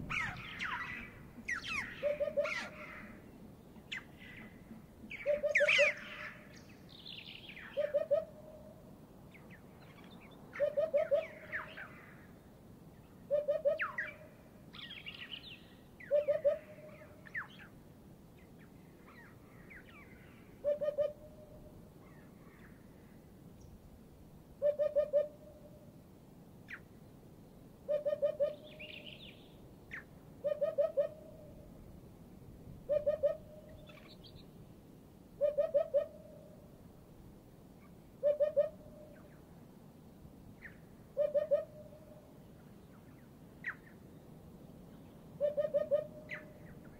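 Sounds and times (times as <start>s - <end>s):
other birds calling: 0.0s - 3.3s, 3.9s - 6.5s.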